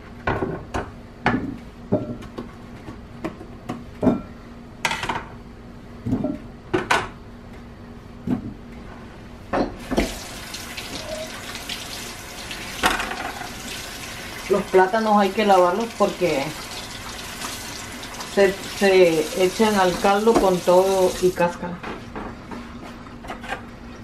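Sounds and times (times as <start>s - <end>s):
tap running into sink: 9.8s - 14.2s.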